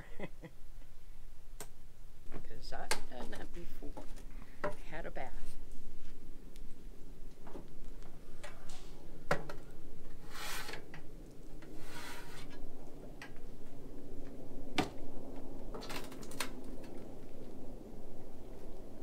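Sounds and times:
metal steps sliding and scraping: 10.1 - 11.0, 11.6 - 12.6.

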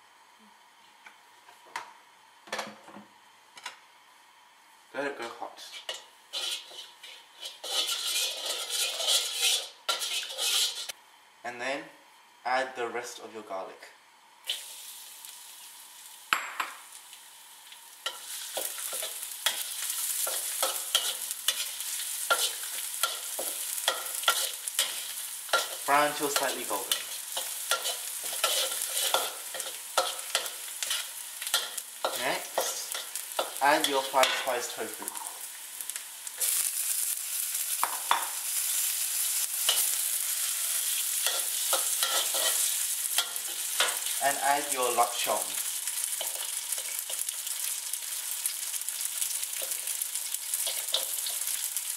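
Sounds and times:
garlic sizzling in hot oil: 5.6 - 11.0, 14.4 - 51.9
metal spatula scraping wok: 5.6 - 11.0, 18.0 - 34.9, 39.3 - 45.4
metal spatula scraping and knocking: 5.7 - 10.9.

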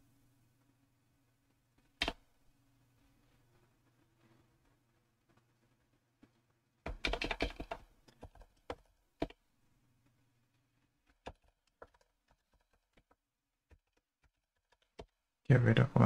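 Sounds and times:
computer keyboard typing: 2.0 - 2.2, 6.9 - 9.4, 11.1 - 15.1.

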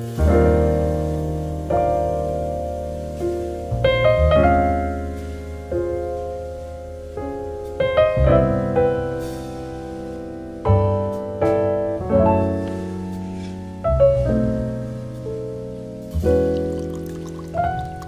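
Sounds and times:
slow solo piano music: 0.0 - 18.0.

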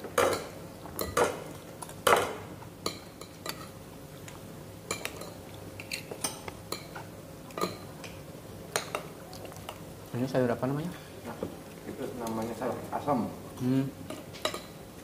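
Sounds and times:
cutlery clinking on plates: 0.2 - 1.4, 14.1 - 14.8.

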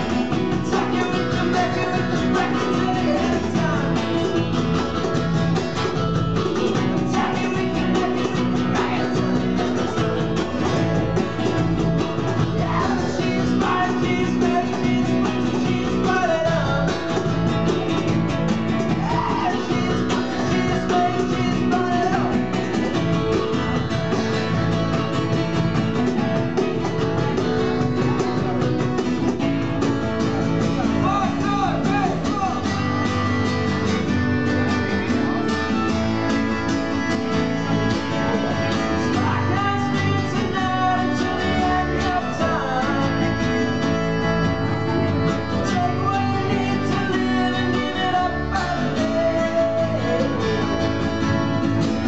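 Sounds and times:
person singing: 0.0 - 5.2, 6.4 - 17.5, 18.9 - 22.8, 38.4 - 50.8
strummed acoustic guitar: 0.0 - 52.0
upright bass: 0.0 - 52.0.

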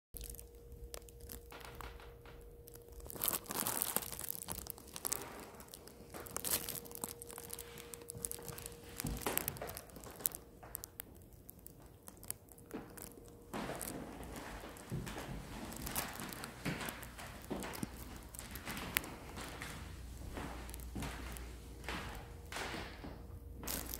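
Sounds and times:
faint steady hum: 0.2 - 23.9
footsteps on hardwood floor: 4.9 - 10.9, 12.8 - 23.9.

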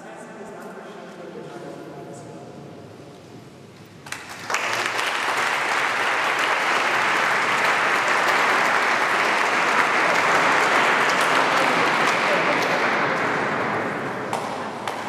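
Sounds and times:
audience applauding: 4.0 - 15.0.

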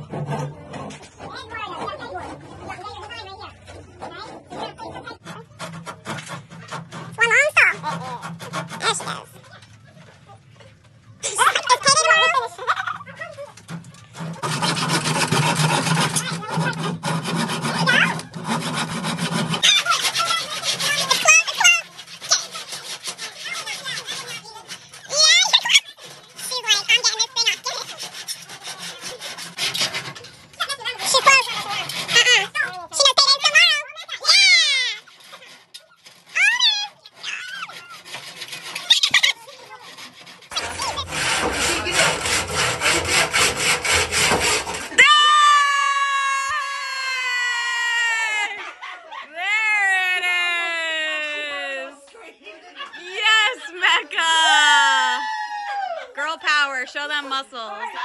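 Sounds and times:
hand saw cutting wood: 4.0 - 9.4, 13.6 - 45.1
loud clatter: 11.4 - 45.0.

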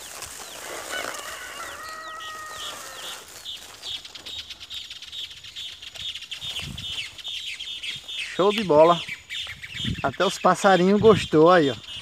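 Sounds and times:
birds chirping: 0.0 - 12.0
rooster crowing: 0.8 - 3.3.

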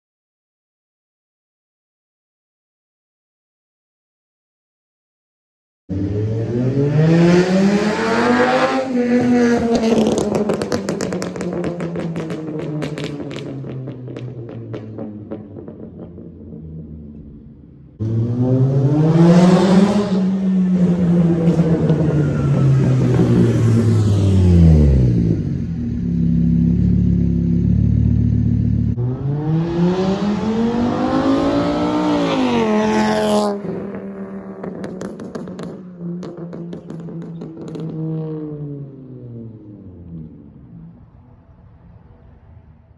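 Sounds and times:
car engine revving: 5.9 - 40.7
exhaust pops and crackles: 9.7 - 17.5, 34.5 - 38.0.

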